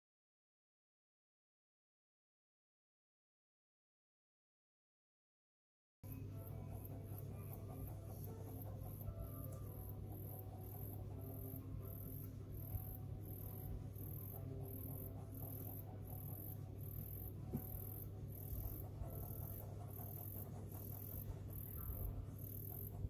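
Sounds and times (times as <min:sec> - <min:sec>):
faint background music: 0:06.0 - 0:23.0
steady low hum: 0:06.0 - 0:23.0
high-pitched insect-like chirp: 0:06.1 - 0:23.0.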